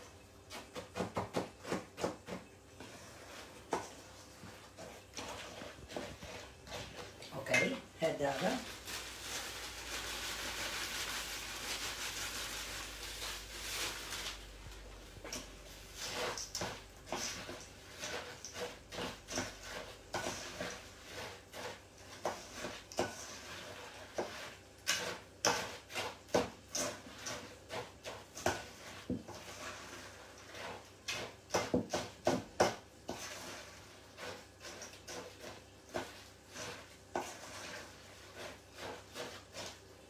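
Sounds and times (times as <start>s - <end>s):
spoon scraping metal bowl: 15.2s - 39.9s.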